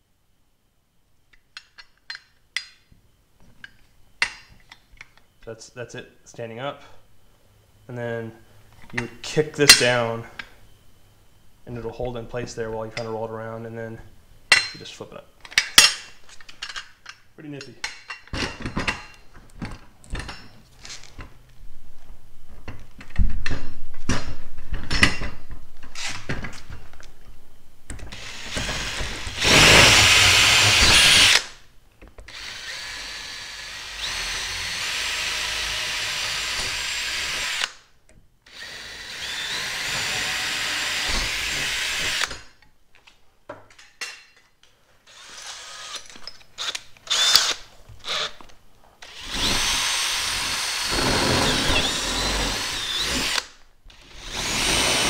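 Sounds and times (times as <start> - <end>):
cordless drill driving screws: 28.1 - 31.5, 32.3 - 37.8, 38.5 - 42.4, 45.1 - 48.4, 49.0 - 55.0.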